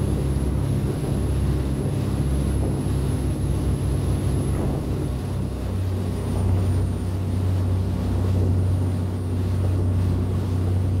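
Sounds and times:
boat engine droning: 0.0s - 11.0s
water and wind noise: 0.0s - 11.0s.

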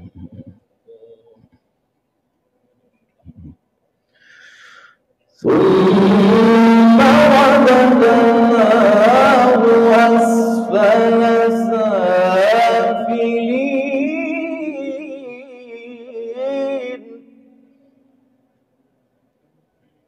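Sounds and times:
man chanting recitation: 5.4s - 17.5s.

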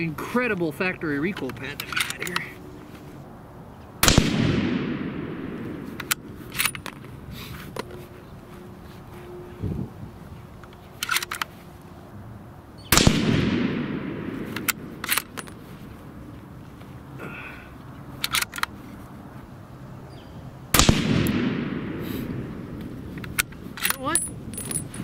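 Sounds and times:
rifle bolt metallic clicks: 1.3s - 2.5s, 5.4s - 7.1s, 10.6s - 11.5s, 13.0s - 15.6s, 18.2s - 18.8s, 22.8s - 25.0s
rifle shots echoing: 4.0s - 6.7s, 12.9s - 15.4s, 20.7s - 22.7s.

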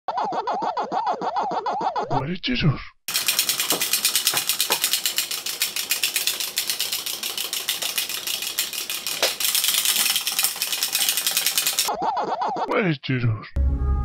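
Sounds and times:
chattering teeth toy clattering: 3.1s - 11.9s.

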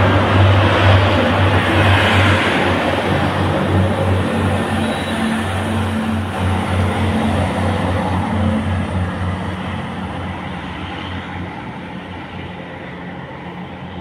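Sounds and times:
diesel train engine pulsing: 0.0s - 14.0s.

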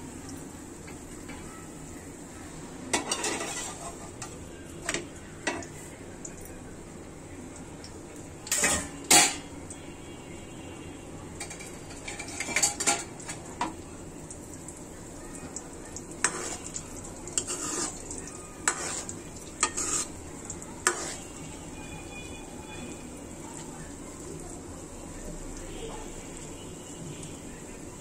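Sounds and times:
food sizzling in oil: 0.0s - 28.0s
metal utensil scraping a frying pan: 2.9s - 5.6s, 8.5s - 9.5s, 11.4s - 13.4s, 16.2s - 20.2s, 20.8s - 21.4s.

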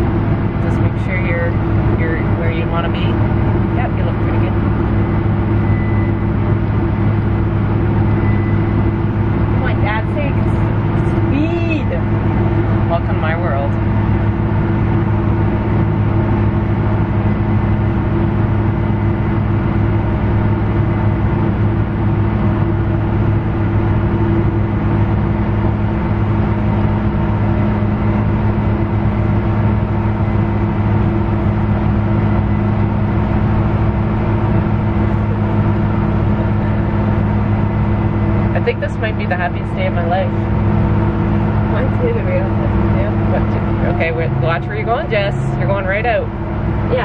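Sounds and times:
tractor engine humming: 0.0s - 47.0s.

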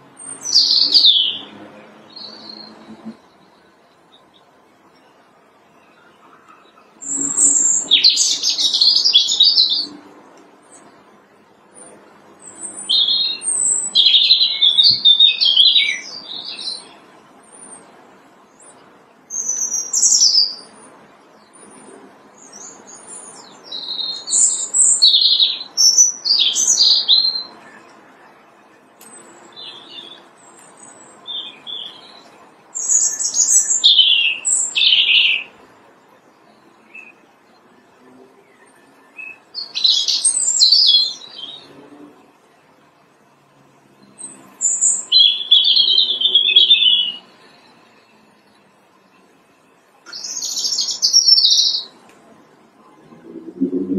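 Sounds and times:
robin singing: 0.0s - 53.9s.

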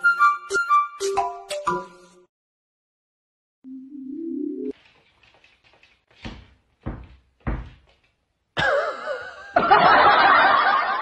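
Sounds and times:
dull thuds: 6.2s - 8.0s.

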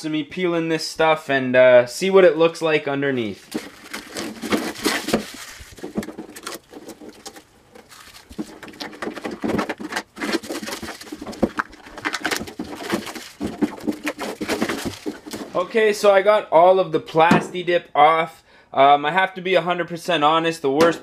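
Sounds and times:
rubber coating peeling and tearing: 3.4s - 15.6s.

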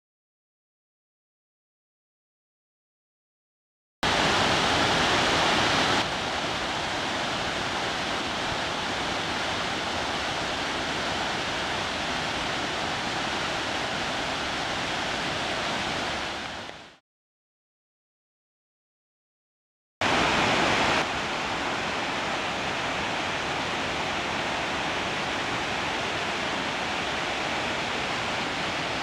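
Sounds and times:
waterfall cascades rushing: 4.0s - 17.0s, 20.0s - 29.0s.

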